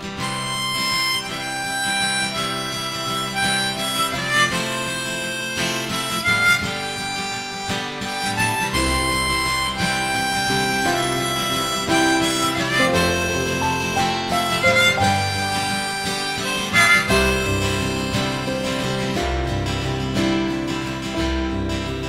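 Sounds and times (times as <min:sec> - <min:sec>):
acoustic guitar: 0:00.0 - 0:22.0
reedy lead melody: 0:00.0 - 0:22.0
bass line: 0:16.8 - 0:22.0.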